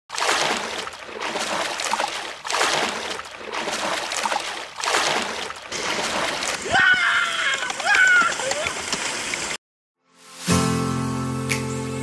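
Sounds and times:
flowing river water: 0:00.1 - 0:09.6
water splashing: 0:00.1 - 0:09.6.

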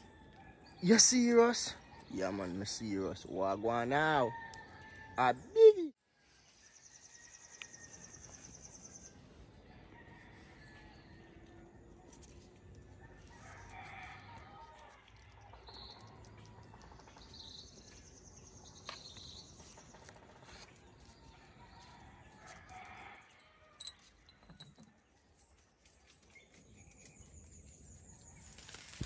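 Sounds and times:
faint rooster crowing: 0:04.0 - 0:05.5, 0:09.5 - 0:17.0, 0:20.0 - 0:24.7
small birds chirping: 0:13.9 - 0:22.0.

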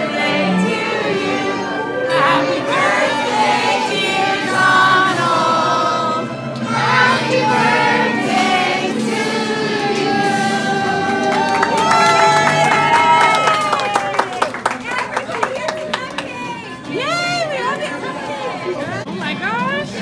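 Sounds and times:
group singing: 0:00.0 - 0:11.8
backing music: 0:00.0 - 0:13.8.

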